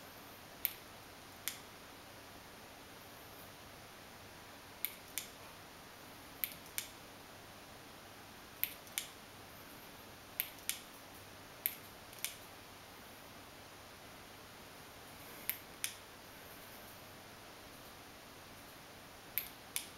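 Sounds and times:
faint steady hiss: 0.0s - 19.9s
sharp short clicks in pairs: 1.4s - 1.7s, 6.4s - 7.0s, 8.6s - 9.2s, 10.4s - 10.9s, 11.6s - 12.4s, 19.4s - 19.9s.

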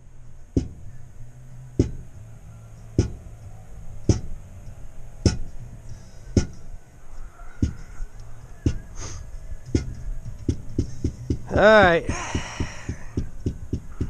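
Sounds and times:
low steady hum: 0.0s - 14.0s
slow deep drum beat: 0.6s - 0.9s, 1.8s - 2.1s, 3.0s - 3.3s, 4.1s - 4.4s, 5.3s - 5.6s, 6.4s - 6.6s, 7.6s - 7.9s, 8.6s - 9.0s, 9.7s - 14.0s.

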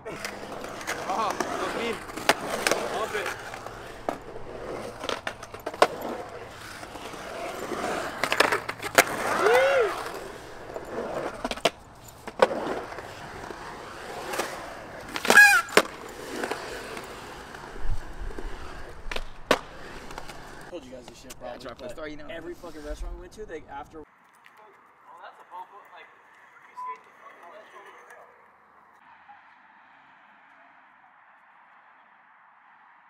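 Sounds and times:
skateboard clacking on concrete: 0.0s - 22.0s
skateboard wheels rolling on concrete: 0.0s - 31.9s.

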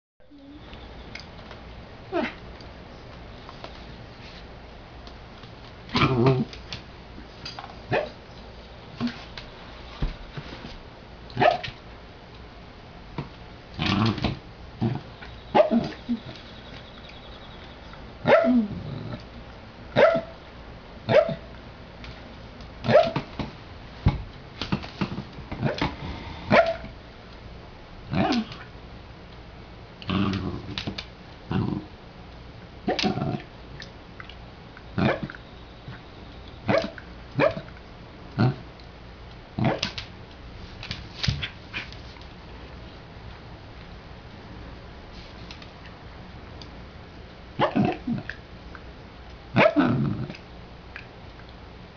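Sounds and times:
dog barking: 7.9s - 8.2s, 11.4s - 11.7s, 15.5s - 16.0s, 18.2s - 18.7s, 20.0s - 20.4s, 21.1s - 21.5s, 22.9s - 23.2s, 26.5s - 26.9s, 35.0s - 35.4s, 36.7s - 37.7s, 47.6s - 48.0s, 49.6s - 49.8s.

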